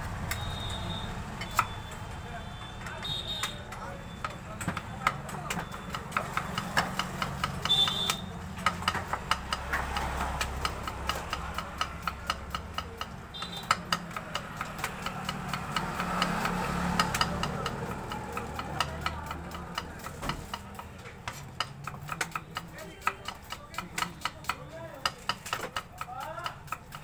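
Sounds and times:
knife slicing onion on board: 0:08.6 - 0:27.0.

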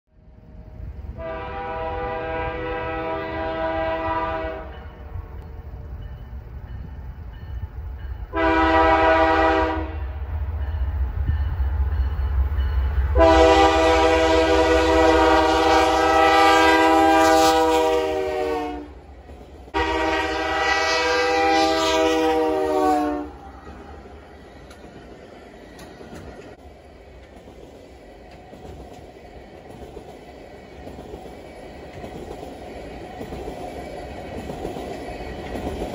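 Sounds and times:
low train rumble: 0:00.1 - 0:35.9
locomotive air horn blasts: 0:01.2 - 0:05.3, 0:08.3 - 0:10.2, 0:13.1 - 0:19.0, 0:19.7 - 0:23.4.

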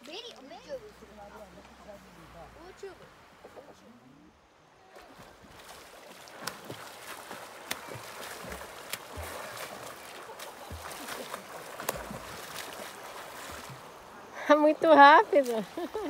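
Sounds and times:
sharp water slaps: 0:04.9 - 0:14.0
swimmer splashing in water: 0:04.9 - 0:14.0.

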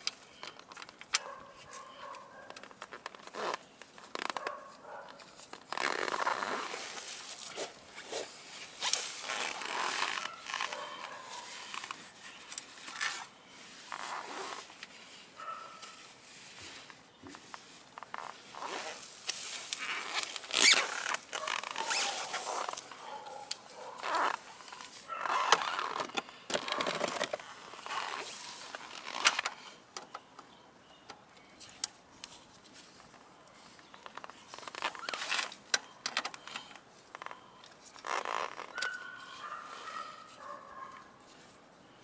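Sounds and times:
paper towel rustling: 0:13.0 - 0:23.2.

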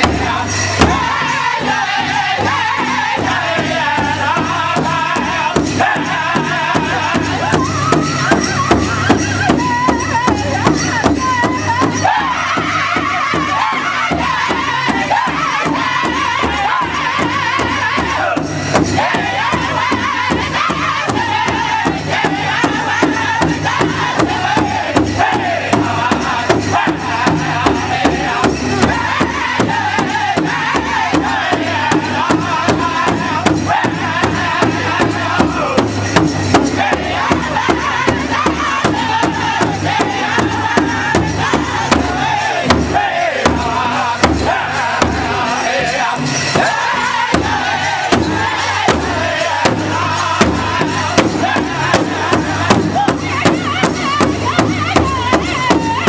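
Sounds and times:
big drum steady beat: 0:00.0 - 0:56.0
men singing together: 0:00.0 - 0:56.0.

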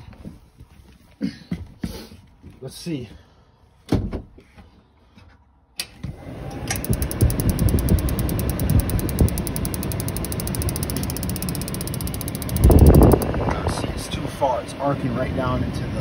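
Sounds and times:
furnace blower motor spinning: 0:06.0 - 0:16.0
spark igniter ticking: 0:06.5 - 0:13.3.

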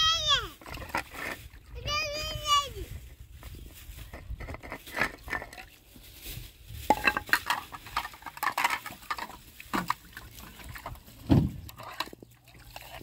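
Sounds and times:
metal pots and utensils clinking: 0:06.8 - 0:10.0, 0:11.7 - 0:13.0.

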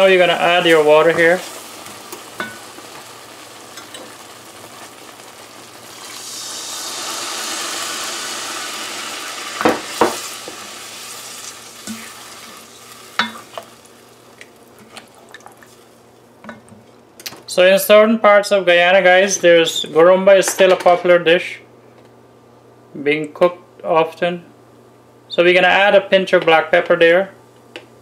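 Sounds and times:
water sizzling in hot syrup: 0:00.0 - 0:16.0.

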